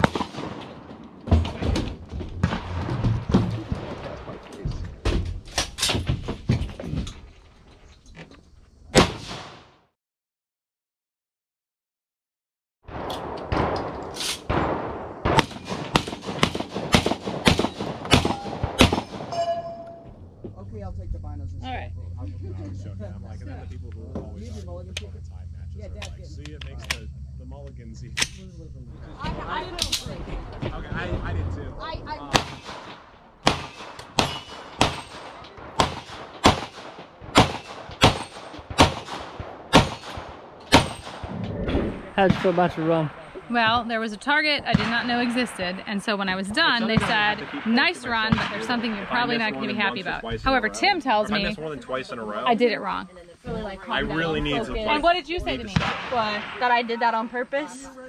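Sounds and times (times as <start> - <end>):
shotgun shots: 0.0 - 4.4, 8.9 - 9.8, 12.9 - 19.4, 32.3 - 43.5, 46.8 - 49.9, 55.5 - 57.2.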